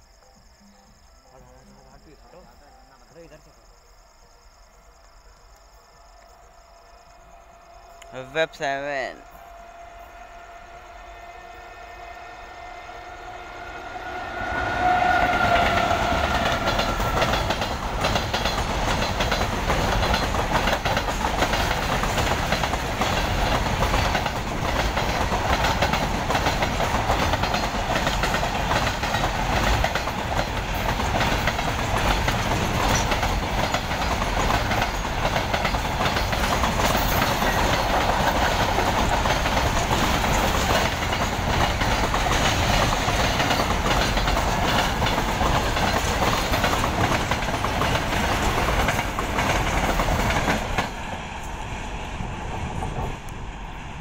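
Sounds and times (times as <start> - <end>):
freight train rumbling past: 6.4 - 54.0
train horn: 7.3 - 17.7
wheel clatter over rail joints: 15.7 - 51.0.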